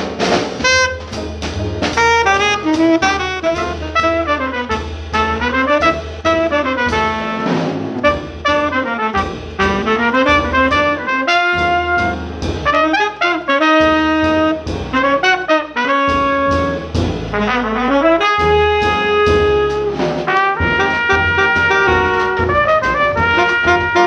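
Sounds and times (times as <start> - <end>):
double bass: 0.0 - 24.0
drums: 0.0 - 24.0
piano: 0.0 - 24.0
trumpet and saxophone melody: 0.0 - 24.0.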